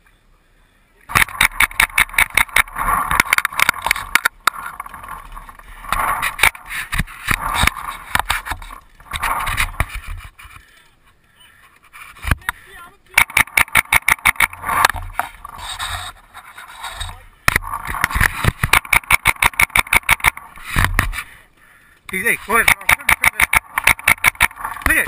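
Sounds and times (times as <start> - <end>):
paintball marker firing: 13.2 - 14.6, 18.6 - 20.4, 22.6 - 24.6.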